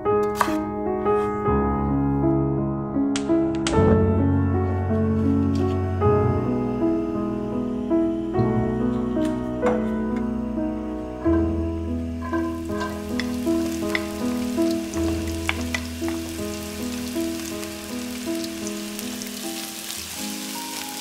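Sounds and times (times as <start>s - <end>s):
background melody of held notes: 0.0s - 21.0s
onions sizzling in oil: 12.1s - 21.0s.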